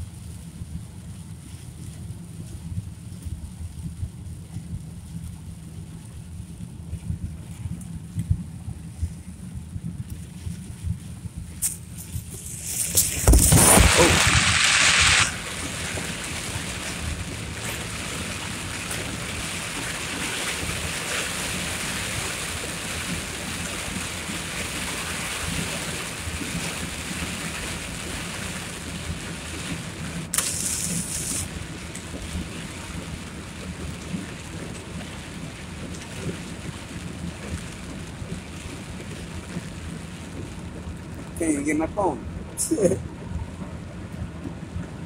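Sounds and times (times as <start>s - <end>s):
heavy rain pouring: 11.3s - 45.0s
sharp high hiss: 30.3s - 31.5s.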